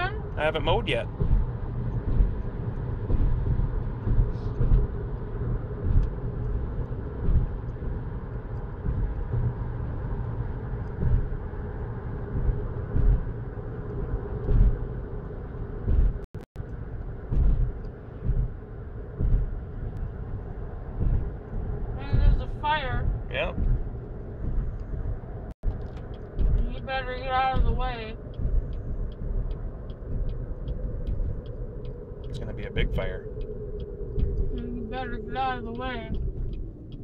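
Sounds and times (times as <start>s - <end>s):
car cabin road rumble: 0.0s - 37.0s
low bumps: 0.0s - 37.0s.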